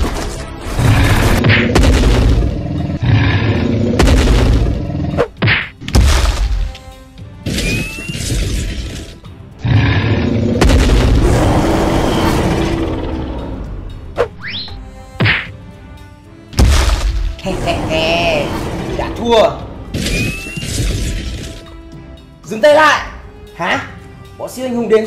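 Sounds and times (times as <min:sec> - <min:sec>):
dramatic background music: 0:00.0 - 0:25.0
heavy booms and crashes: 0:00.8 - 0:05.0, 0:09.6 - 0:13.8, 0:16.6 - 0:21.4.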